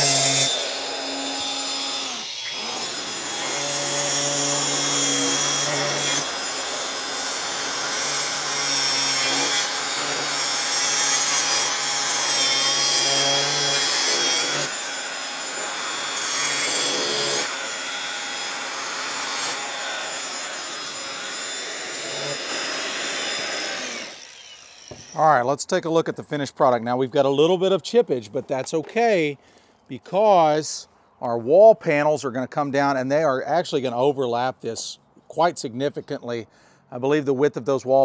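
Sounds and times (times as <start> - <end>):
angle grinder cutting stone: 0.0 - 25.2.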